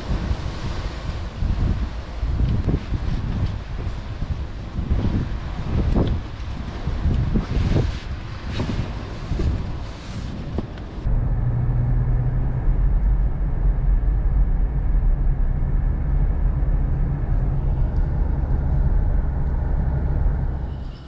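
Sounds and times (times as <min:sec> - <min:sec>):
wind buffeting microphone: 0:00.0 - 0:20.8
tyre noise on road: 0:00.0 - 0:21.0
car engine drone: 0:09.4 - 0:21.0.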